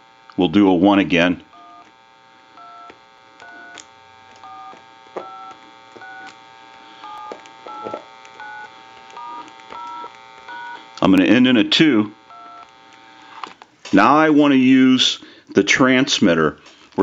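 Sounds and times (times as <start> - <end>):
touch-tone dialing beeps: 1.6 - 1.9, 2.6 - 3.8, 4.4 - 6.4, 7.0 - 10.8, 12.3 - 12.7.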